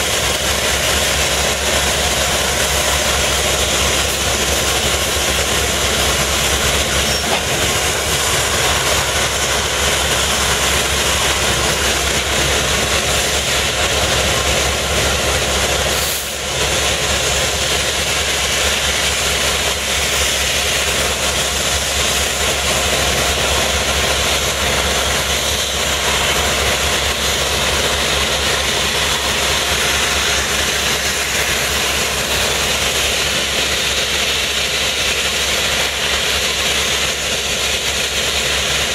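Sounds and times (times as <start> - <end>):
diesel locomotive engine idling: 0.0 - 38.9.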